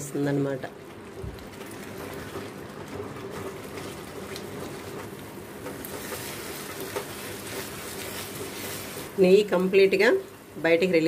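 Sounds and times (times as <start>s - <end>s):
halwa bubbling and sizzling: 0.0s - 11.0s.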